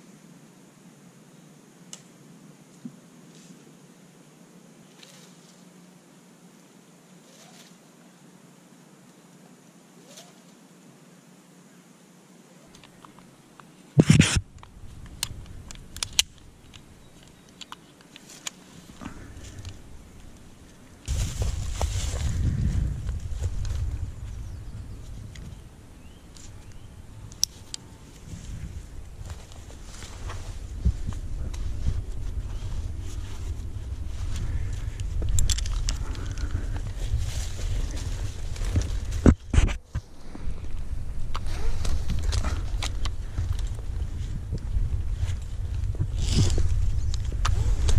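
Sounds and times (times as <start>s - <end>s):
wind rumbling on microphone: 14.0s - 17.4s, 18.8s - 47.9s
rustling handling noise: 14.0s - 47.9s.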